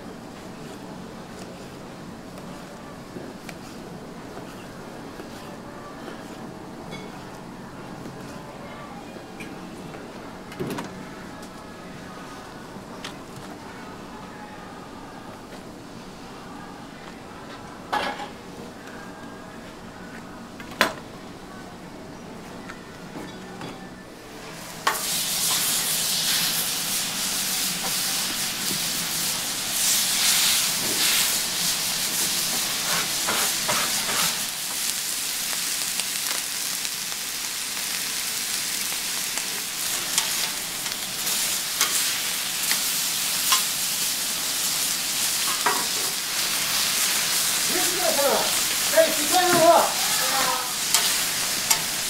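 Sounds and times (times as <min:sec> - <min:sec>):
steaks sizzling on a griddle: 0:24.8 - 0:52.0.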